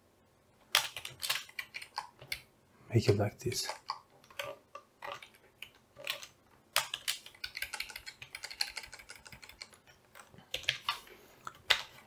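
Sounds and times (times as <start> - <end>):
typing on a computer keyboard: 0.7 - 2.5, 3.8 - 11.0.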